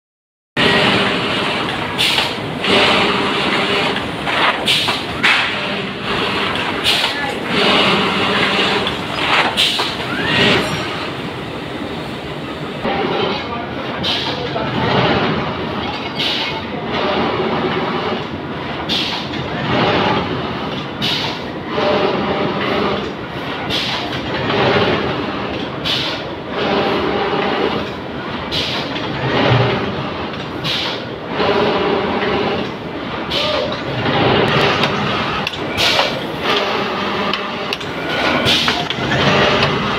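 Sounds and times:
machine knocking: 0.6 - 39.9
machinery clattering: 0.6 - 39.9.

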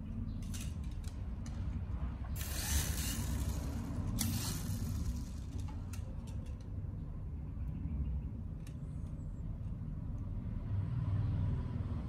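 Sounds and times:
toy helicopter motor whirring: 2.4 - 6.6.

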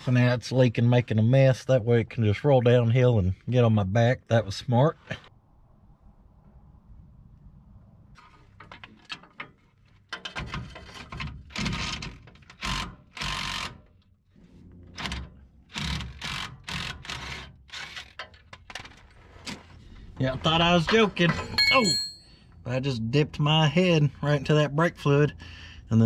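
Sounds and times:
rapid mechanical clicking: 15.0 - 18.3
metal clanks: 20.4 - 22.7.

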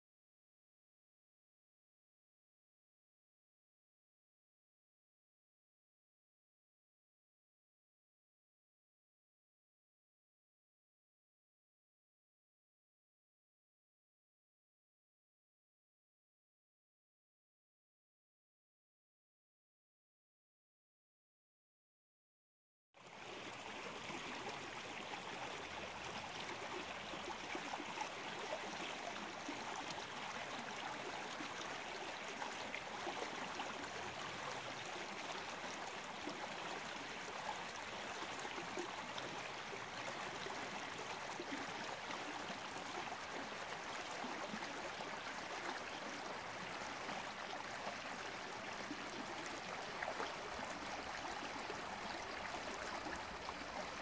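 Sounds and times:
creek babbling over stones: 23.0 - 54.0.

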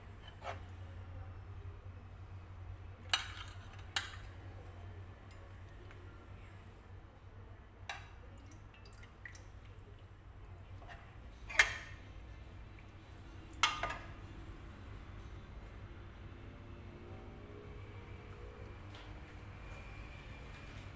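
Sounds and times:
spoon scraping pan and bowl: 0.2 - 0.6.

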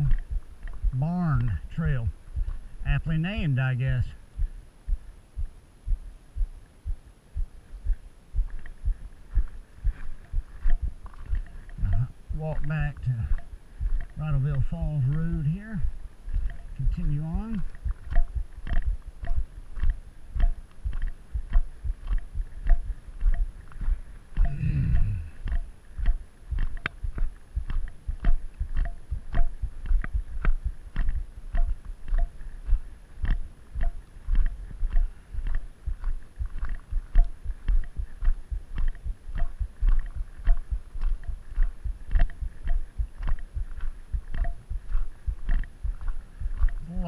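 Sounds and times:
footsteps crunching on gravel: 7.8 - 47.0
low vocal sound: 11.7 - 13.4, 24.4 - 25.5
light tick: 15.9 - 32.4, 33.2 - 46.8.

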